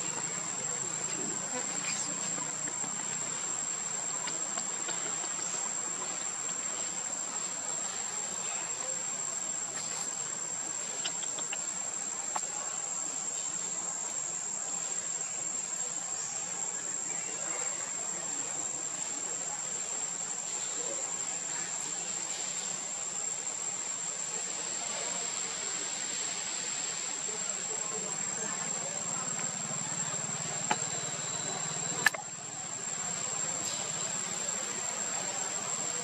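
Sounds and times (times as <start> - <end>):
background hiss: 0.0 - 36.0
insect chorus whine: 0.0 - 36.0
faint ticks: 10.8 - 12.6.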